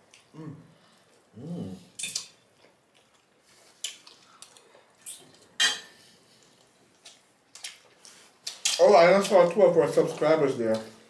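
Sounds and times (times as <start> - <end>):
wet chewing sounds: 1.9 - 5.6, 6.3 - 11.0.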